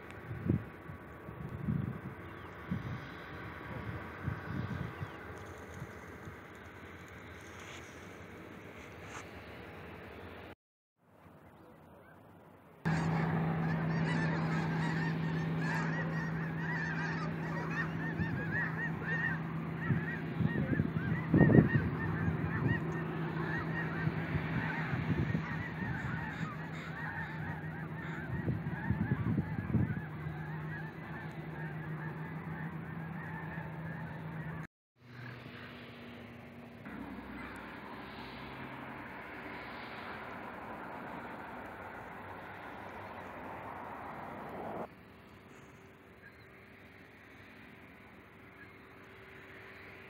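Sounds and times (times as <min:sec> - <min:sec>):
steady low hum: 0:11.5 - 0:50.0
geese honking: 0:12.9 - 0:35.3, 0:36.9 - 0:50.0.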